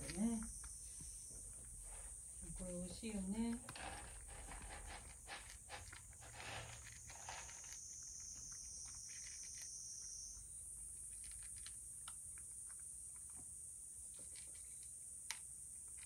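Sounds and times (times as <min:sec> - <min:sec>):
cat crunching dry kibble: 0:03.2 - 0:10.2, 0:10.9 - 0:13.4, 0:14.1 - 0:16.0.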